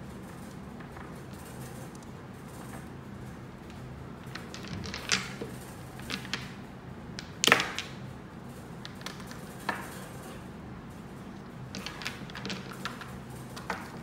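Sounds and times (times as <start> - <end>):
small stones clicking on a table: 3.7 - 6.6, 7.2 - 8.0, 8.8 - 9.9, 11.4 - 14.0.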